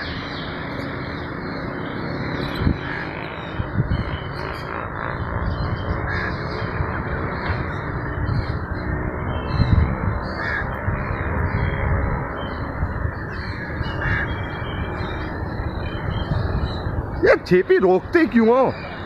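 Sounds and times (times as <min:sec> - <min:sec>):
steady rushing noise: 0:00.0 - 0:19.0
crows cawing: 0:02.8 - 0:03.3, 0:06.0 - 0:06.6, 0:10.2 - 0:11.2, 0:13.1 - 0:15.2.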